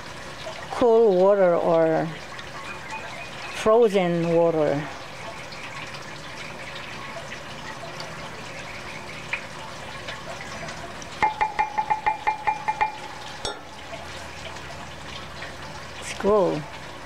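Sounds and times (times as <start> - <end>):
spatula tapping glass: 11.2 - 13.7.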